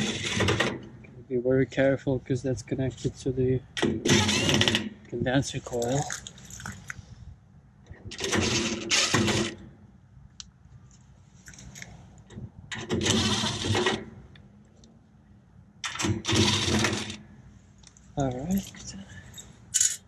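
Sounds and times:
cordless power drill: 0:04.1 - 0:04.8, 0:08.3 - 0:09.6.

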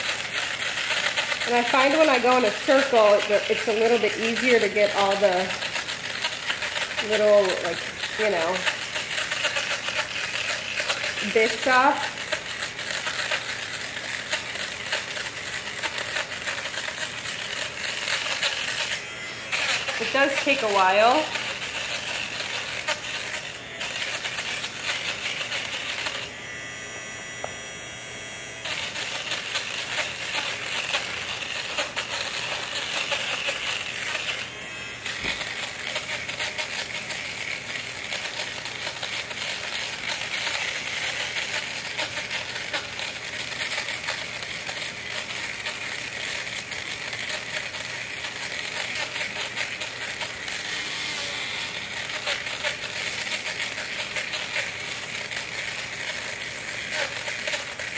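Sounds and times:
blades crackling on fabric: 0:00.0 - 0:26.3
fabric shaver motor hum: 0:00.0 - 0:57.9.

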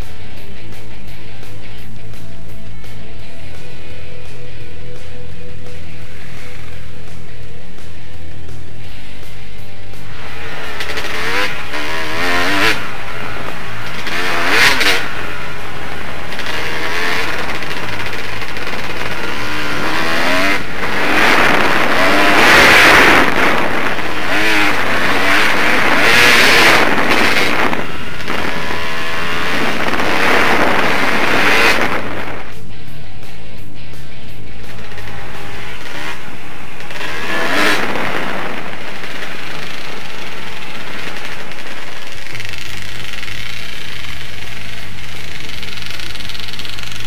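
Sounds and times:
off-road motorcycle engine revving: 0:00.0 - 0:47.0
loud rushing noise: 0:08.5 - 0:47.0.

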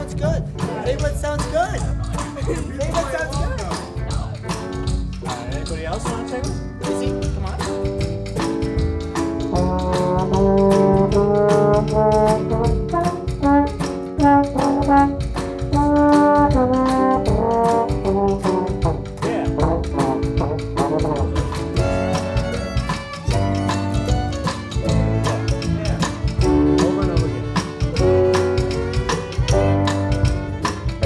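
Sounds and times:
acoustic guitar: 0:00.0 - 0:31.0
drums: 0:00.0 - 0:31.0
piano: 0:00.0 - 0:31.0
upright bass: 0:00.0 - 0:31.0
trombones playing melody: 0:09.5 - 0:22.4, 0:26.4 - 0:31.0.

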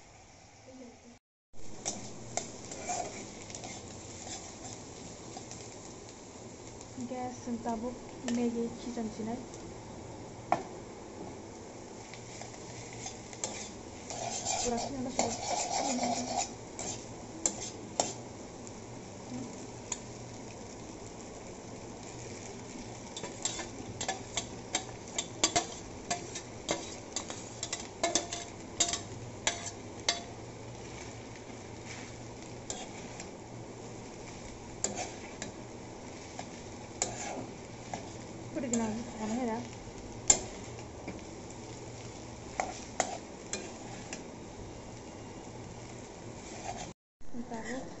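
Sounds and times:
frying sizzle: 0:00.0 - 0:48.0
spatula scraping wok: 0:01.6 - 0:05.8, 0:11.9 - 0:18.5, 0:21.7 - 0:44.4, 0:45.8 - 0:48.0.

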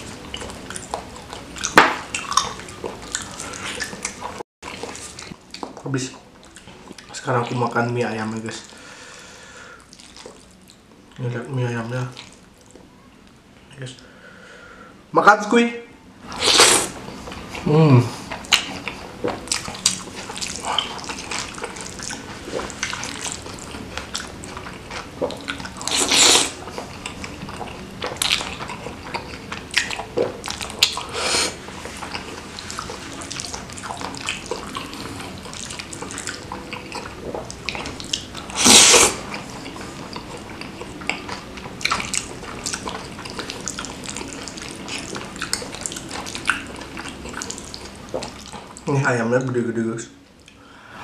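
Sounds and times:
person chewing and smacking: 0:00.0 - 0:07.6, 0:09.8 - 0:11.2, 0:16.4 - 0:48.9
loud slurps: 0:16.3 - 0:17.0, 0:25.8 - 0:26.6, 0:38.5 - 0:39.2.

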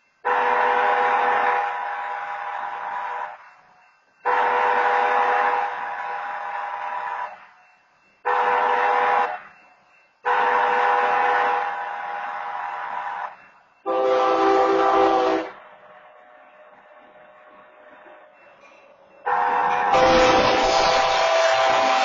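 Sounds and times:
locomotive air horn blasts: 0:00.2 - 0:02.0, 0:04.3 - 0:07.2, 0:08.3 - 0:09.4, 0:10.2 - 0:12.0, 0:13.9 - 0:15.6, 0:19.3 - 0:22.0.

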